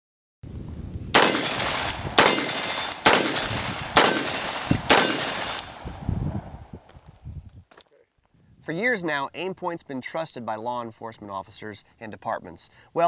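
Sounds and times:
loud gunshots with echo: 1.2s - 5.9s.

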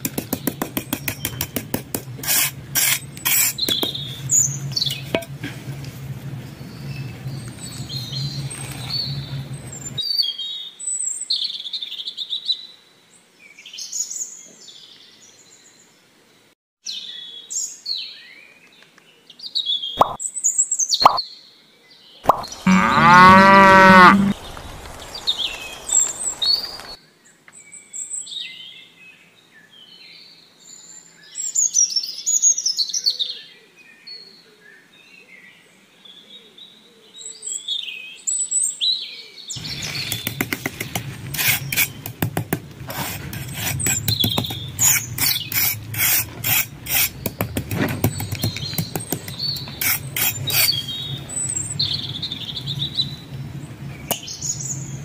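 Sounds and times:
cow mooing: 22.3s - 24.4s
birds chirping: 22.3s - 27.0s, 39.5s - 42.2s, 43.4s - 46.0s, 46.8s - 55.0s.

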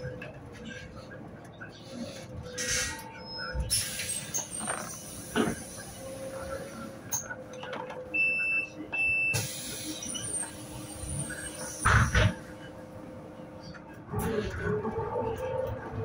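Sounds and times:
bus cabin hum: 0.0s - 16.0s.

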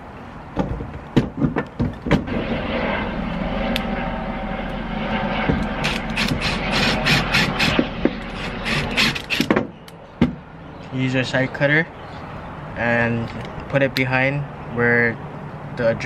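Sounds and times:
cordless drill motor whine: 5.6s - 9.5s
drill clicks and rattles: 5.8s - 9.6s.

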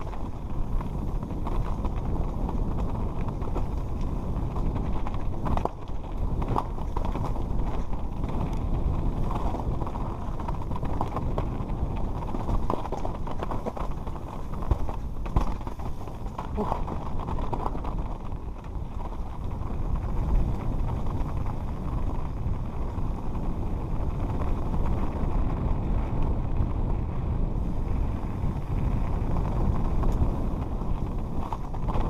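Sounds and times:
tyres crunching over stone: 0.0s - 22.2s, 29.1s - 32.0s
bike knocking and clattering: 0.0s - 26.9s.

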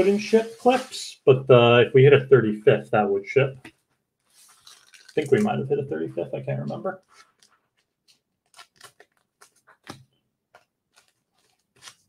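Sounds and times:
plastic wrapper crinkling: 4.2s - 5.6s, 7.0s - 12.0s.

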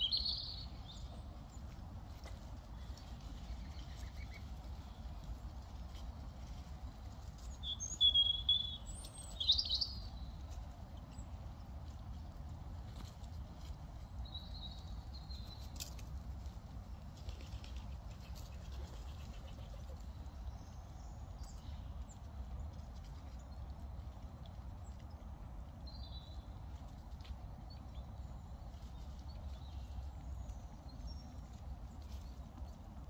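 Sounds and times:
bird chirps: 0.0s - 1.1s, 7.6s - 10.2s
squirrels rustling in dry leaves: 0.0s - 33.0s.

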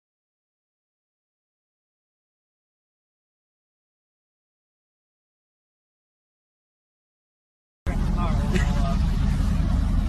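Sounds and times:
loud low rumble: 7.9s - 10.0s.

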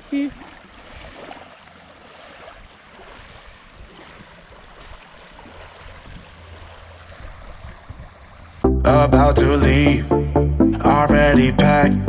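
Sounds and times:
waves lapping on sandy shore: 0.0s - 8.6s
wind rumble on microphone: 2.6s - 8.6s.

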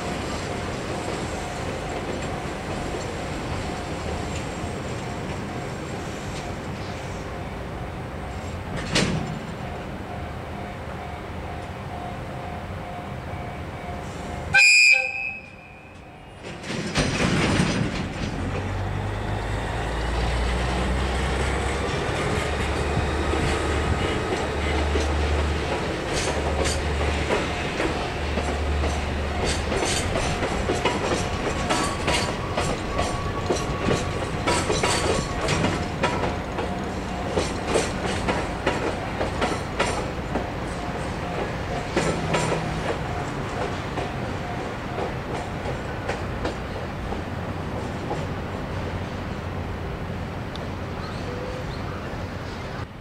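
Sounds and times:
train wheels clicking on rail joints: 0.0s - 10.2s, 13.9s - 49.3s
locomotive engine rumbling: 0.0s - 53.0s
locomotive horn blast: 14.1s - 16.0s
wagons clattering over crossing: 16.3s - 19.2s, 20.6s - 48.3s.

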